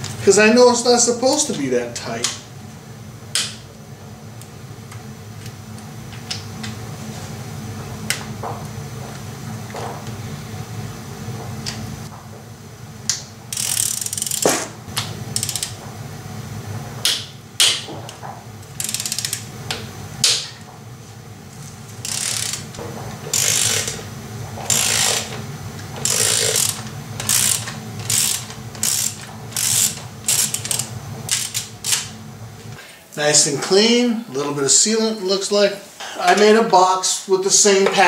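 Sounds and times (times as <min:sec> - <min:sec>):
ratchet wrench clicking: 0:13.5 - 0:14.7, 0:15.3 - 0:15.8, 0:18.8 - 0:19.5, 0:22.0 - 0:24.0, 0:24.7 - 0:25.4, 0:26.0 - 0:32.1.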